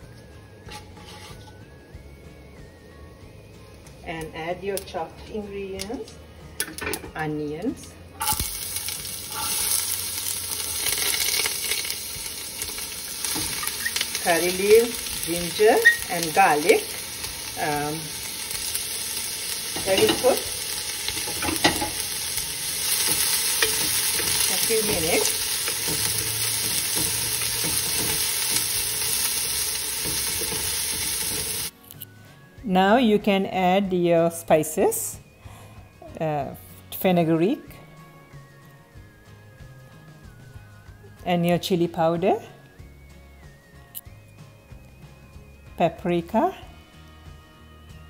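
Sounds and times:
onions sizzling in a pan: 8.2 - 31.8.

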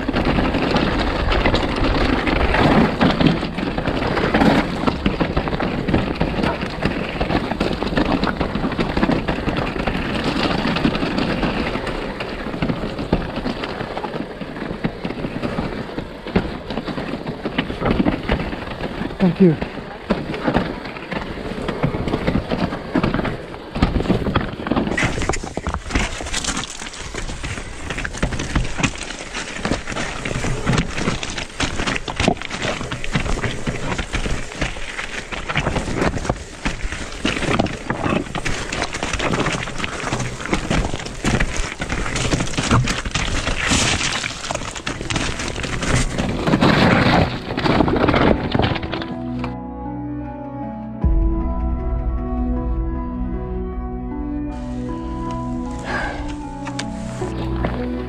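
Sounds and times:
bike rattling on rocky trail: 0.0 - 49.6, 54.6 - 58.0
rushing noise: 51.0 - 58.0.

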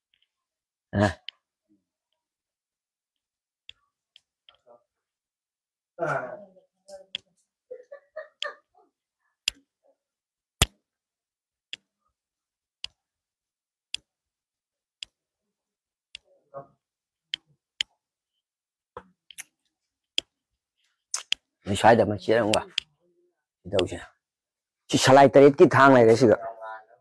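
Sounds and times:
sharp short clicks: 21.1 - 21.5.

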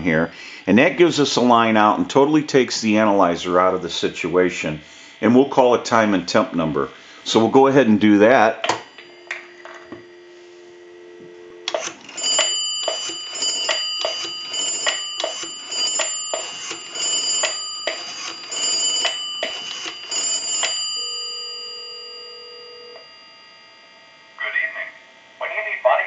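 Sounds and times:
telephone ringback tone: 8.8 - 25.0
telephone dial tone: 9.1 - 23.3
rotary dial pulses clicking: 11.6 - 23.1.

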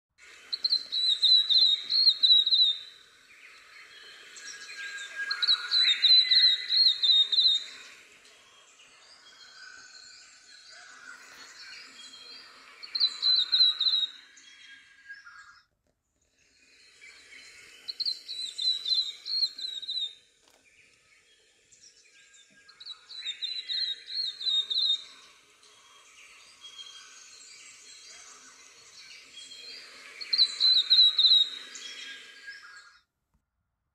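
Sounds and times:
faint background ambience: 0.2 - 33.1.

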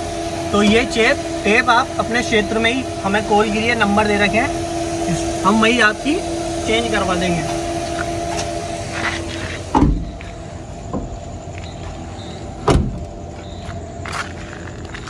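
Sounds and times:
steady low hum: 0.0 - 15.0
heavy thumps: 7.5 - 11.2.

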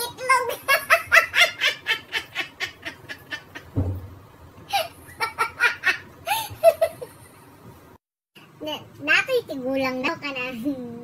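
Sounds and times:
young woman laughing hard: 0.7 - 3.7, 4.7 - 7.2.

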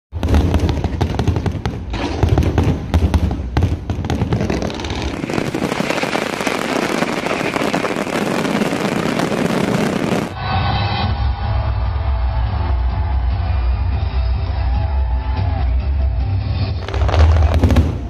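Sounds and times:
fireworks bangs and booms: 0.1 - 10.4, 16.8 - 18.0
fireworks crackling: 0.2 - 10.4, 16.8 - 18.0.

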